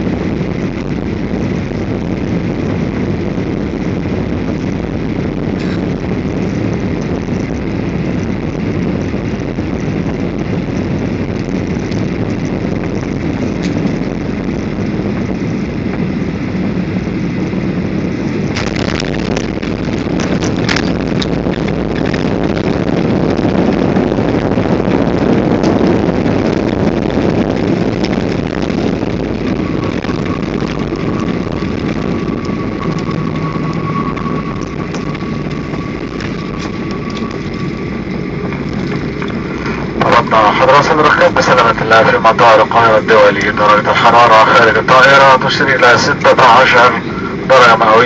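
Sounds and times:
jet engine and airflow roar: 0:00.0 - 0:48.0
touchdown rattling: 0:18.1 - 0:42.0.

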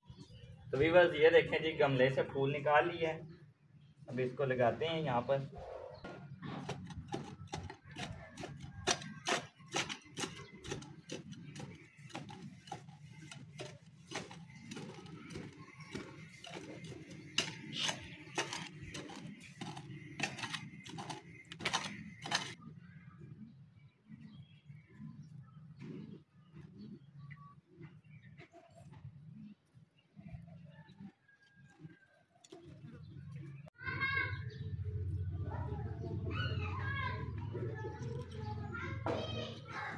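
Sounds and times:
hand tool scraping garden soil: 0:06.4 - 0:22.6.

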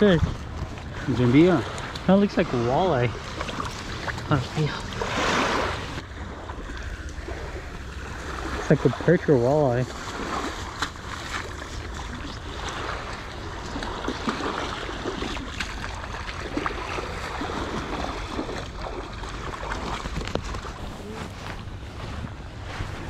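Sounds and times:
wind rumble on microphone: 0:00.0 - 0:09.0, 0:09.8 - 0:23.0
waves washing on shore: 0:00.0 - 0:23.0
small splashes and clicks: 0:01.6 - 0:02.1, 0:09.9 - 0:20.8.

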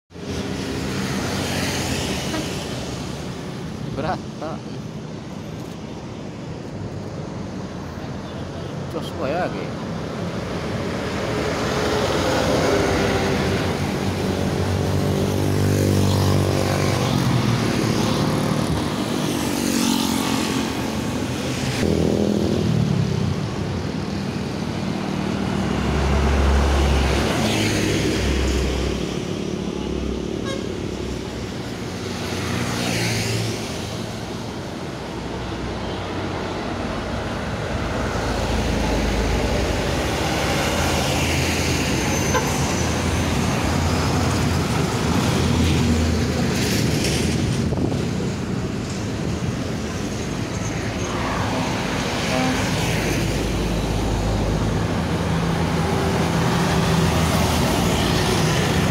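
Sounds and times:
highway traffic passing: 0:00.1 - 0:58.9.

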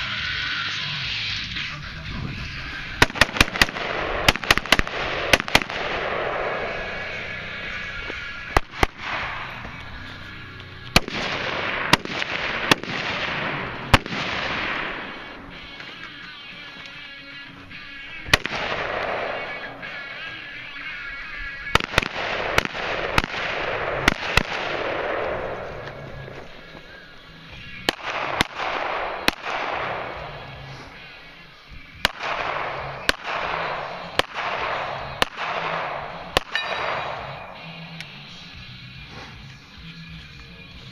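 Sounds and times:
rifle gunshots with echo: 0:02.8 - 0:10.0, 0:10.8 - 0:37.9.

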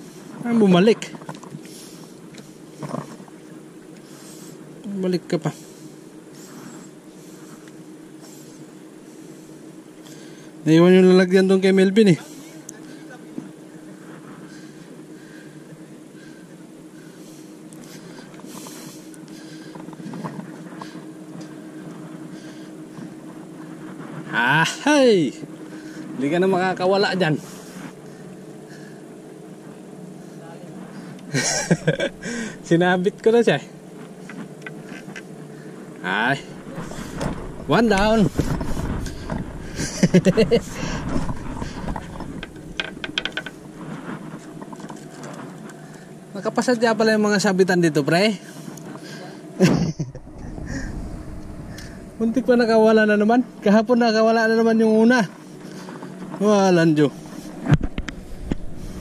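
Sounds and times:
steady low hum: 0:00.0 - 0:59.0
fishing line rustling and clicking: 0:34.0 - 0:46.2.

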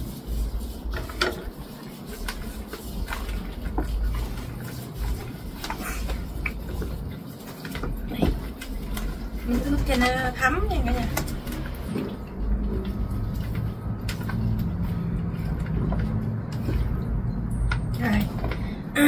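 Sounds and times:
wet squishing of chicken: 0:00.0 - 0:17.3.

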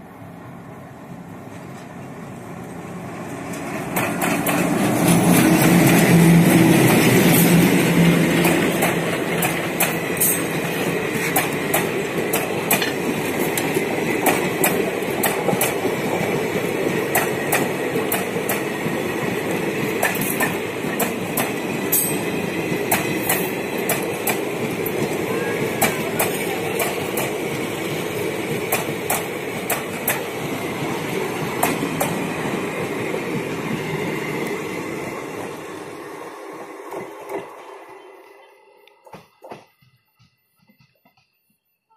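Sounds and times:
train wheels rumbling on rails: 0:01.2 - 0:41.3
wheels clacking over rail joints: 0:03.4 - 0:25.2.

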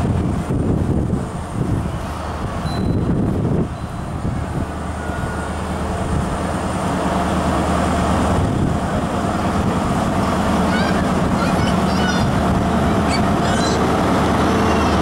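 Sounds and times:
diesel train engine droning: 0:00.0 - 0:15.0.

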